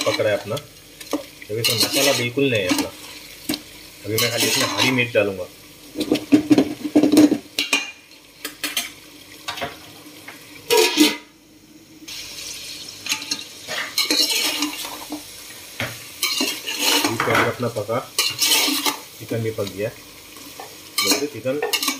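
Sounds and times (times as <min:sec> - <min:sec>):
chicken sizzling in oil: 0:00.0 - 0:21.9
metal spoon scraping a pot: 0:01.1 - 0:03.2, 0:04.1 - 0:05.0, 0:10.7 - 0:11.2, 0:13.1 - 0:15.1, 0:16.2 - 0:17.3, 0:18.2 - 0:19.0, 0:20.6 - 0:21.9
spoon clinking against pot: 0:21.0 - 0:21.9.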